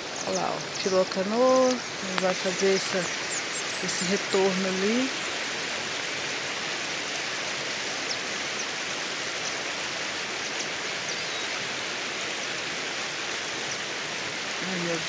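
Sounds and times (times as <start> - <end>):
river rapids rushing: 0.0 - 15.0.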